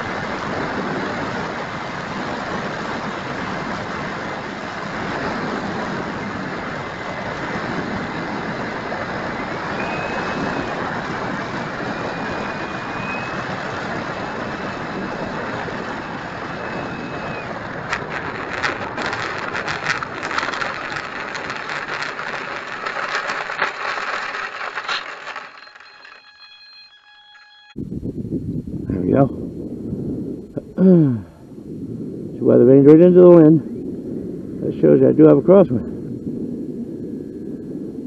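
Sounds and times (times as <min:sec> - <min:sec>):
electric motor and propeller: 0:00.0 - 0:27.8
thin high whine: 0:05.0 - 0:27.9
sharp clicks and knocks: 0:17.9 - 0:26.3
faint steady tones: 0:18.2 - 0:27.8.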